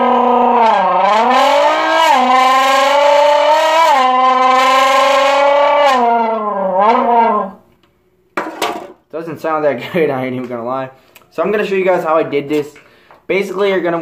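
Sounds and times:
throat rasping engine imitation: 0.0 - 7.7.

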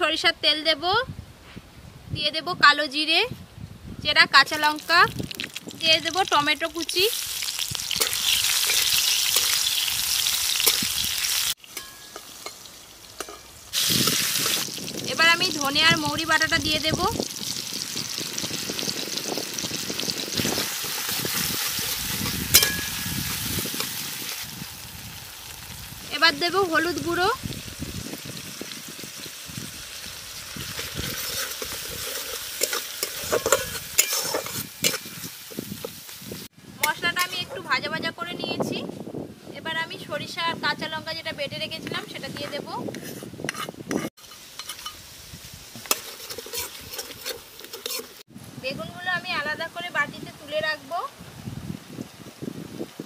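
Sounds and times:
food sizzling in hot oil: 4.1 - 38.3, 39.7 - 53.0
metal spatula clicking and scraping: 7.9 - 9.7, 11.7 - 12.6, 13.2 - 13.5, 20.6 - 24.0, 30.8 - 35.2, 42.3 - 45.0, 45.8 - 48.2.

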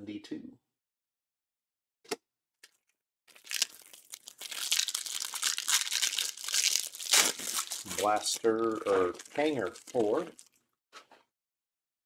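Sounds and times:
plastic wrapper crinkling and tearing: 2.6 - 10.6.

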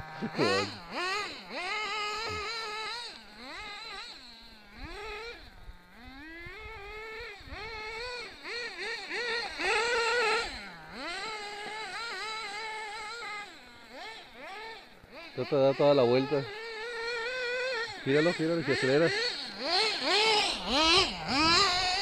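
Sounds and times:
rc car motor revving: 0.0 - 22.0.

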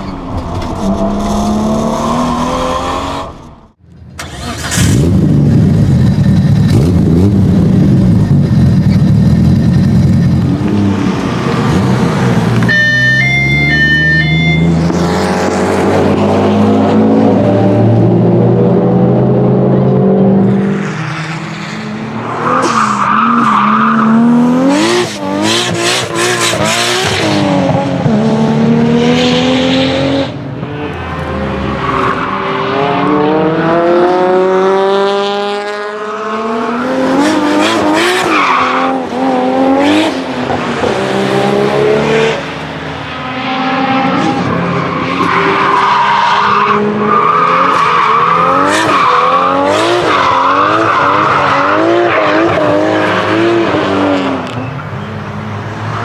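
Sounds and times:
car engine revving hard: 46.7 - 54.4.

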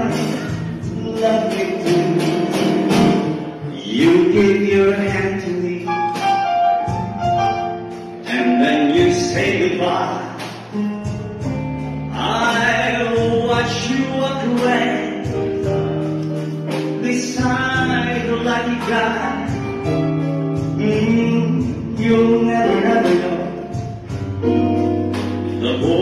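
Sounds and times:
man singing through pa: 0.0 - 6.4, 8.2 - 10.6, 12.1 - 16.1, 17.0 - 20.0, 20.6 - 24.1, 25.5 - 26.0
guitar accompaniment: 0.0 - 26.0.

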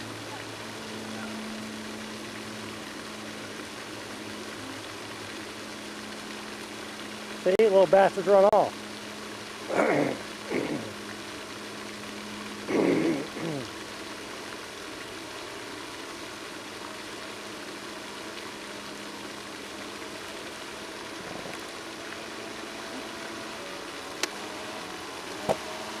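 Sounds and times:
model boat motor hissing: 21.1 - 26.0.

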